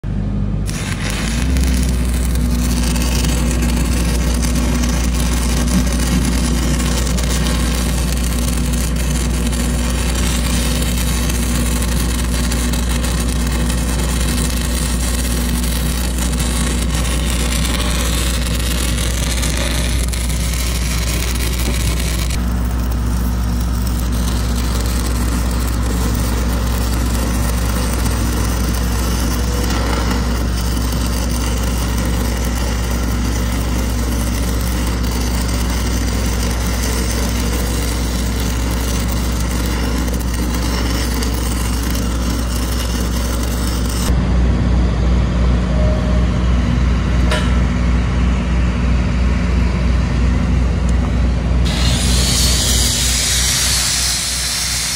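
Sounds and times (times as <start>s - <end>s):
welding arc crackling and hissing: 0.6s - 44.2s, 51.6s - 54.9s.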